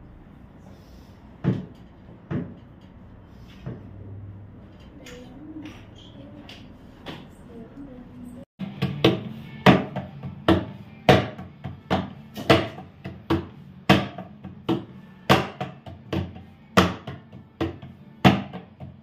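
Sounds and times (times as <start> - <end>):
palms slapping dough on board: 8.6 - 19.0.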